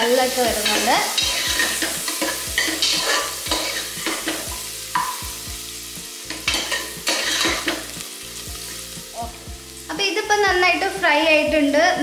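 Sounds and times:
vegetables sizzling in butter: 0.0 - 12.0
spoon scraping a pot: 0.7 - 5.2, 6.4 - 7.9.

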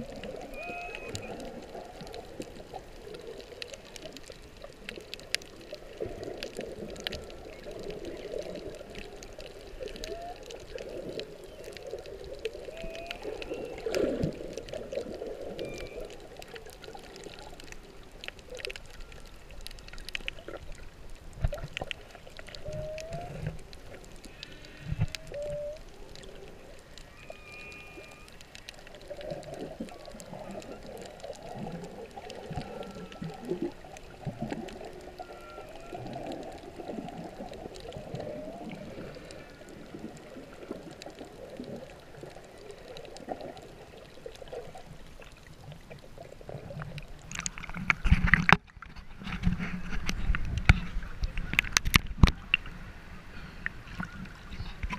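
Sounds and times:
underwater water noise: 0.0 - 54.9
whale moans and squeaks: 0.4 - 1.6, 10.0 - 10.5, 12.7 - 13.9, 15.6 - 16.2, 22.6 - 23.6, 25.0 - 25.9, 27.1 - 28.4, 32.6 - 33.7, 35.1 - 37.1, 38.0 - 39.0.

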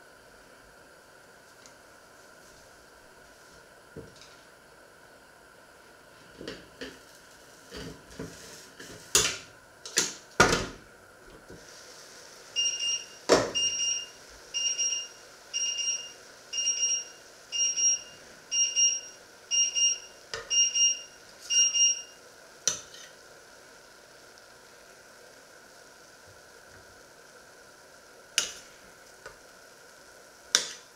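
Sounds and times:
electronic alarm beeping: 12.6 - 22.2.

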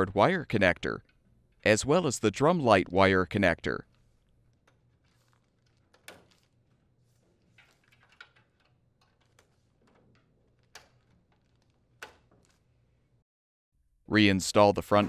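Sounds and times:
wire harness rustling: 3.8 - 13.2.

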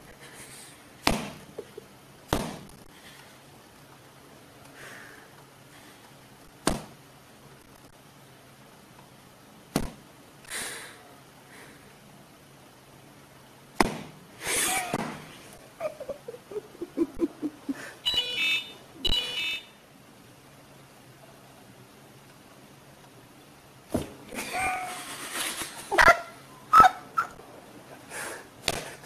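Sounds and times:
person laughing: 1.4 - 1.9, 14.5 - 15.0, 15.6 - 18.0, 24.3 - 27.4.

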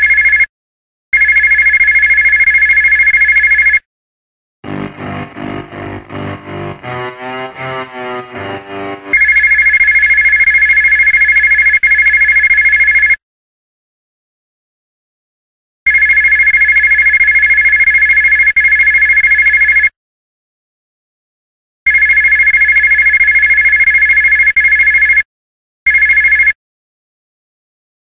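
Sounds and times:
electronic telephone ringing: 0.0 - 0.5, 1.2 - 3.8, 9.1 - 13.2, 15.9 - 19.9, 21.9 - 25.2, 25.9 - 26.6.

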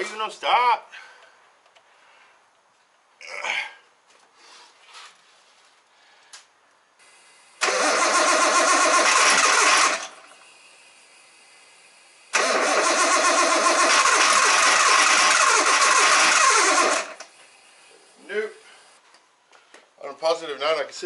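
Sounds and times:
car engine starting: 7.6 - 10.4, 12.3 - 17.2.

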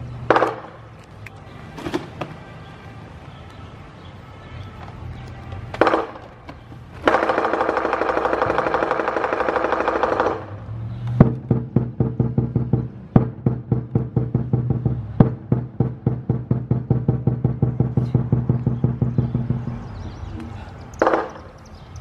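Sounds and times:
drum strokes: 11.2 - 19.8.

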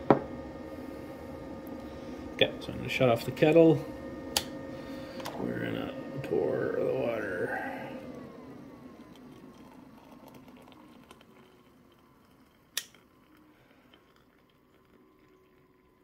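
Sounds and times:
water trickling into mug: 9.0 - 16.0.

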